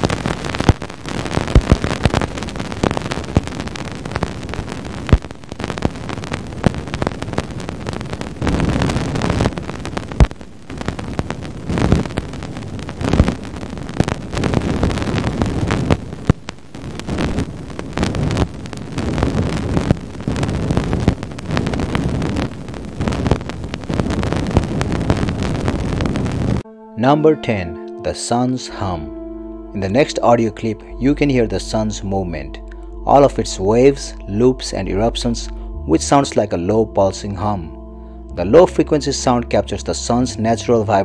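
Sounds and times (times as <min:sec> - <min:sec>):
dense crackle of pops and clicks: 0:00.0 - 0:26.7.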